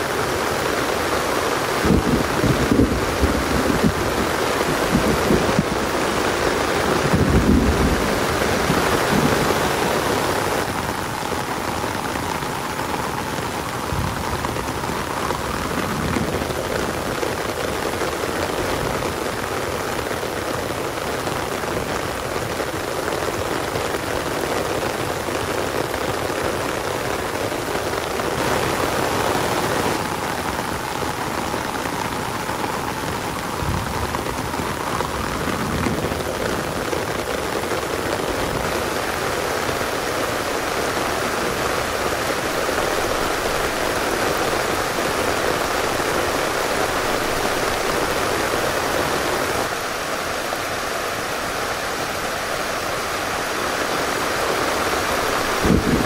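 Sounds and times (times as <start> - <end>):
dense rainfall: 0.0 - 56.0
low thunder rumbles: 1.8 - 10.0, 55.6 - 56.0.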